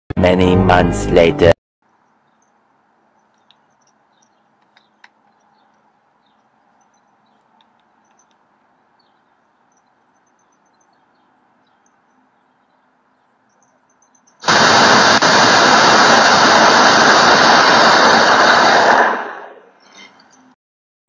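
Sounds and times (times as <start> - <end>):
loud static noise burst: 14.4 - 19.6.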